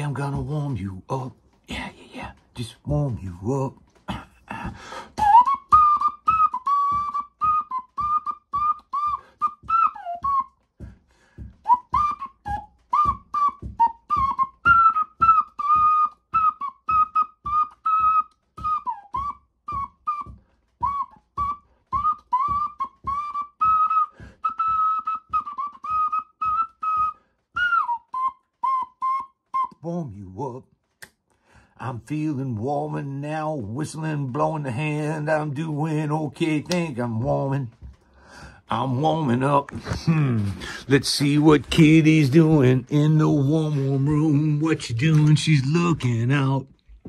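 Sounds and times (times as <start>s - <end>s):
man whistling through cupped hands: 4.5s - 29.9s, 34.4s - 45.3s.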